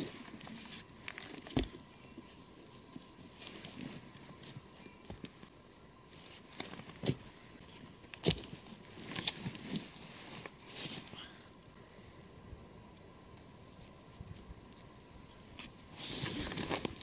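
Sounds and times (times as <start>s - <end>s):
clothing and leaves rustling: 0.0s - 12.2s, 12.9s - 17.0s.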